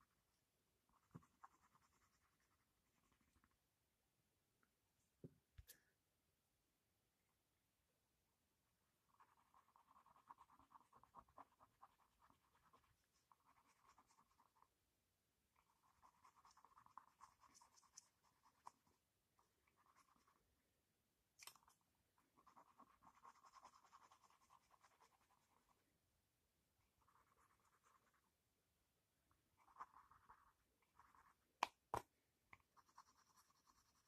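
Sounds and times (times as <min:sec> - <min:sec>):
pencil scratching on paper: 0:00.8 - 0:03.5, 0:09.0 - 0:14.7, 0:15.6 - 0:20.5, 0:22.2 - 0:25.9, 0:26.8 - 0:28.4, 0:29.6 - 0:31.5, 0:32.6 - 0:34.0.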